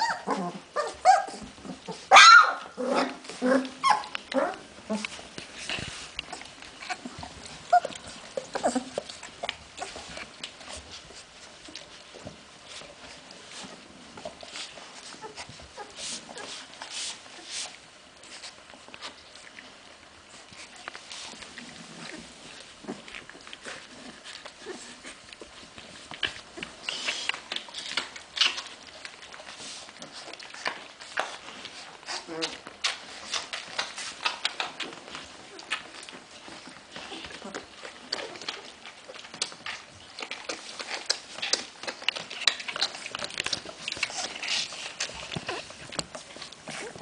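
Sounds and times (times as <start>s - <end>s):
puppies whimpering and squeaking: 0.0s - 19.6s, 20.2s - 47.0s
puppy squeak: 3.8s - 4.1s.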